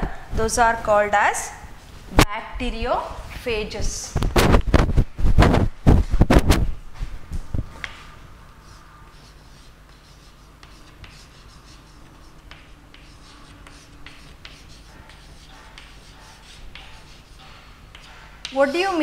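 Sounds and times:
steady low hum: 0.0s - 19.0s
chalk scratching on chalkboard: 8.6s - 19.0s.

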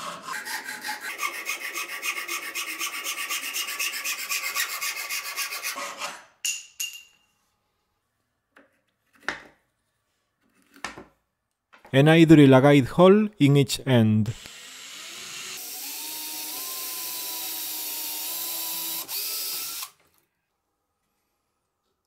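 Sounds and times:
hacksaw cutting wooden rod: 0.0s - 6.3s.

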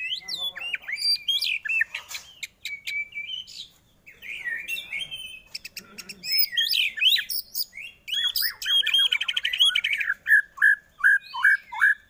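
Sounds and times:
bird singing whistles and clicks: 1.0s - 3.6s.

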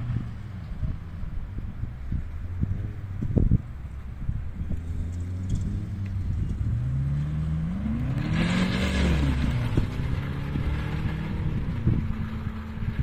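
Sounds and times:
car engine accelerating past: 4.5s - 13.0s.

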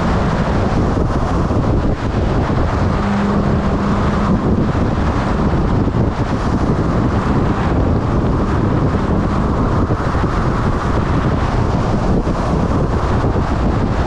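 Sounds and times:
motorcycle engine: 0.0s - 13.5s
road noise: 0.0s - 14.0s
wind noise on microphone: 0.0s - 14.0s.

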